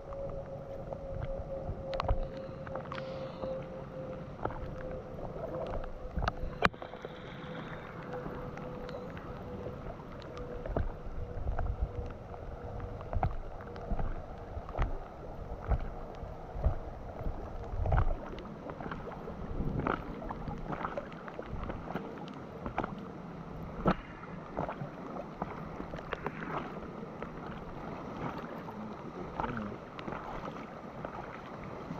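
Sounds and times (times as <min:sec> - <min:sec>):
taps and splashes against hull: 0:00.0 - 0:03.4, 0:04.1 - 0:31.9
floodwater rushing and slapping: 0:00.0 - 0:31.9.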